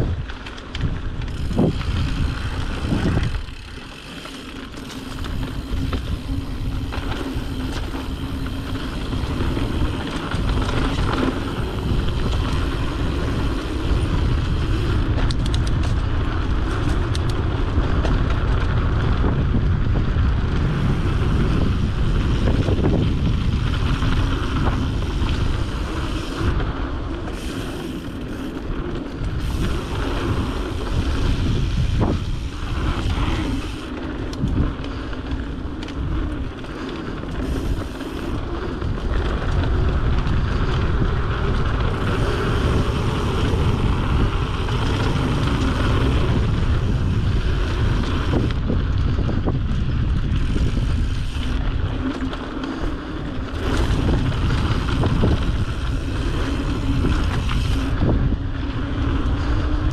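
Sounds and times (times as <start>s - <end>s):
low rumble of movement on dirt: 0.0s - 59.9s
wind buffeting microphone: 0.0s - 59.9s.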